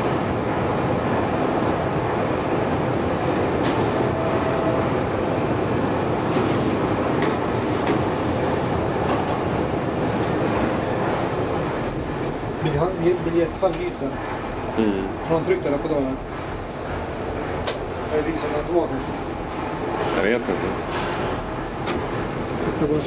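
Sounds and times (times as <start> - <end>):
inclined elevator car running on rails: 0.0 - 14.5.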